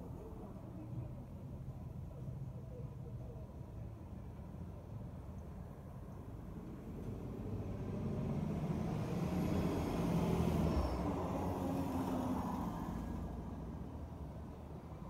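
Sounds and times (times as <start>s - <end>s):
motor vehicle passing by: 6.7s - 14.2s.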